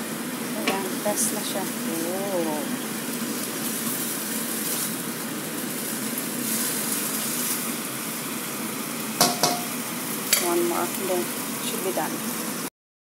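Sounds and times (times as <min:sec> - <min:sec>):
sauce sizzling and bubbling: 0:00.0 - 0:12.7
spatula stirring: 0:09.2 - 0:10.5.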